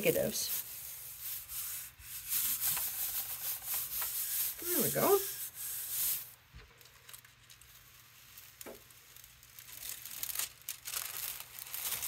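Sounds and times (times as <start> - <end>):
tissue paper crinkling rustle: 0.0 - 12.0.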